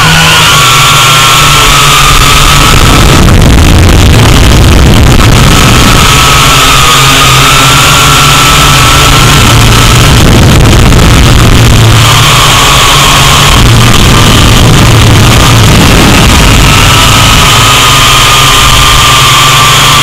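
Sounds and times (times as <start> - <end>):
drone propellers whining: 0.0 - 20.0
rush of air: 0.0 - 20.0.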